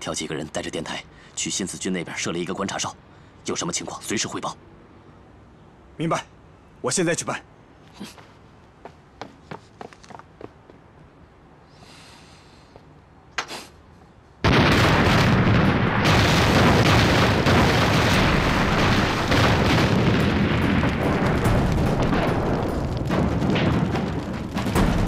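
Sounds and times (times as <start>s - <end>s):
shell explosions barrage: 14.4s - 25.0s.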